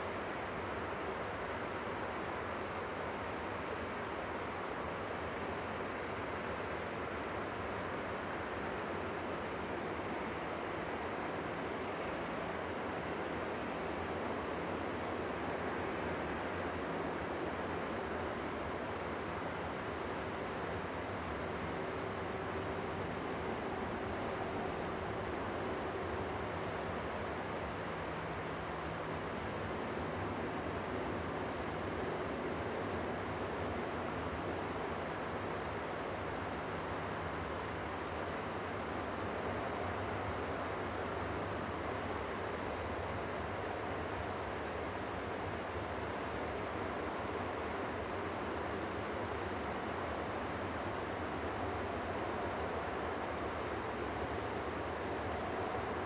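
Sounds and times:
distant jet engines rushing hiss: 0.0 - 56.0.

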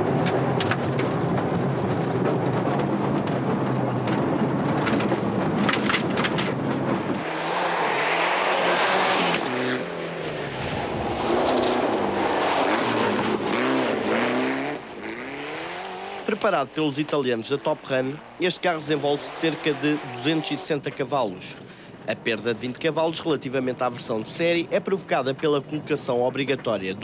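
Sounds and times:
rally car engine revving: 0.0 - 20.9
tyres spraying gravel: 15.2 - 27.0.

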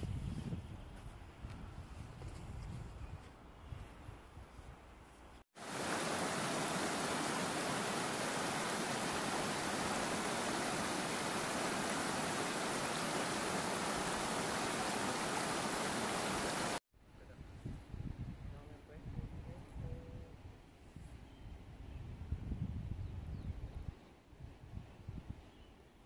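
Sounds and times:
river rushing over rocks: 5.6 - 16.8.

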